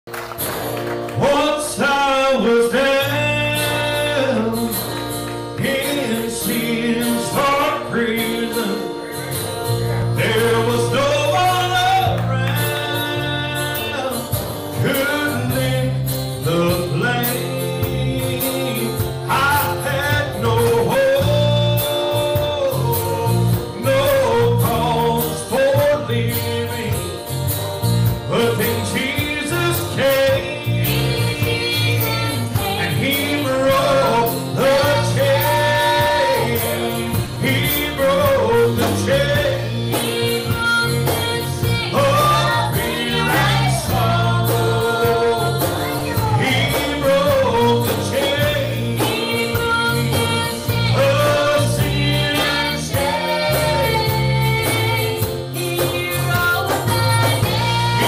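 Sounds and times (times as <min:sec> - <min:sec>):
acoustic guitar strumming: 0:00.1 - 0:58.0
bass line: 0:00.1 - 0:58.0
drum kit: 0:00.1 - 0:58.0
second guitar: 0:00.1 - 0:58.0
man singing: 0:01.1 - 0:27.3, 0:28.1 - 0:58.0.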